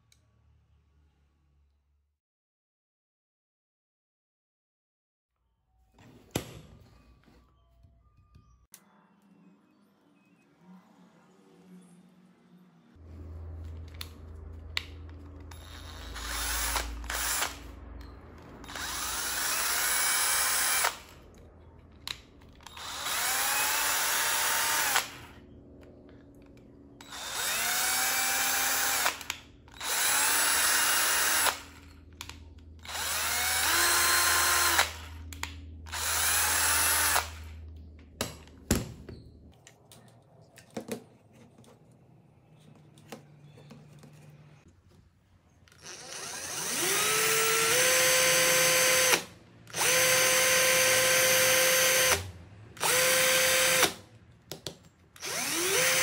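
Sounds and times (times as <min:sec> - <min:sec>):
cordless drill motor whining: 0:15.4 - 0:17.7, 0:18.6 - 0:21.2, 0:22.6 - 0:25.4, 0:27.0 - 0:37.7, 0:45.7 - 0:54.0, 0:55.2 - 0:56.0.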